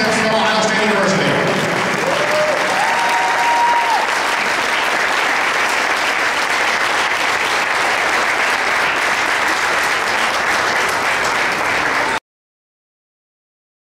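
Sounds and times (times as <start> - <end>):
audience applauding: 1.2 - 12.2.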